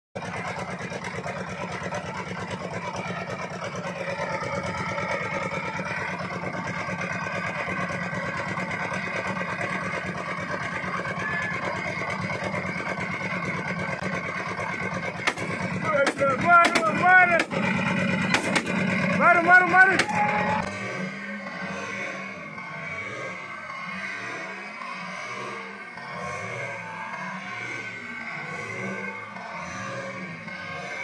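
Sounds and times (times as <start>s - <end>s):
boat engine running: 0.2s - 31.0s
sharp crack: 15.2s - 17.6s, 18.3s - 18.8s.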